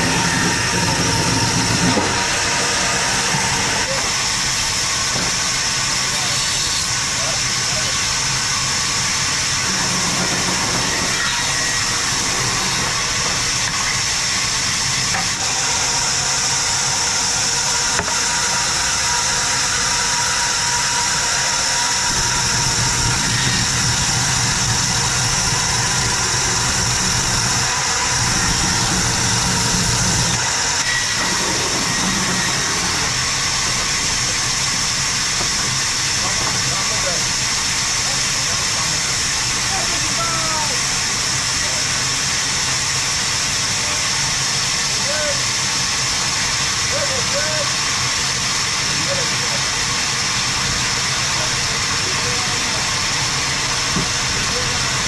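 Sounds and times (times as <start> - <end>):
low machine drone: 0.0 - 6.4, 17.8 - 44.3
band saw cutting logs: 0.0 - 55.0.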